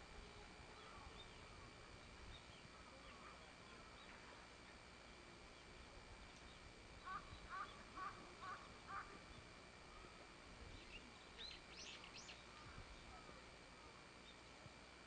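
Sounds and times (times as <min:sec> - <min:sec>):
crow cawing: 0:07.0 - 0:09.2.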